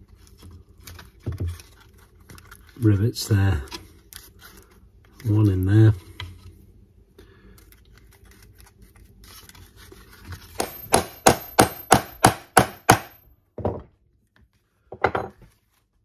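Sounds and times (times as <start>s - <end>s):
hammer striking metal rivet setter: 10.6s - 13.2s.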